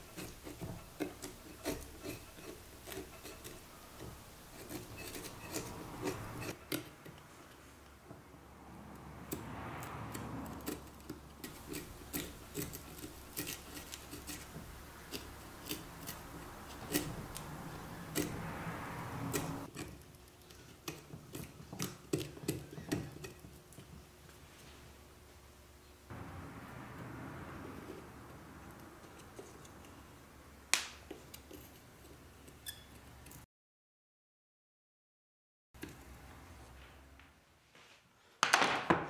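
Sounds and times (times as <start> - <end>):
blade scraping wood: 0.0 - 7.8, 9.2 - 23.7, 27.4 - 30.3, 31.1 - 33.4
carving blade ticking on deadwood: 0.2 - 7.3, 8.9 - 18.5, 19.1 - 20.1.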